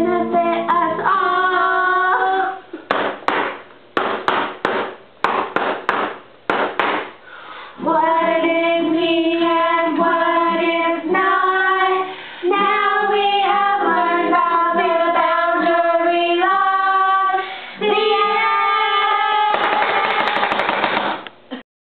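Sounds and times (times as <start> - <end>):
acoustic guitar: 0.0 - 2.6, 7.5 - 16.6
women singing together: 0.0 - 2.6, 7.8 - 20.4
clapping and cheering: 19.3 - 21.2.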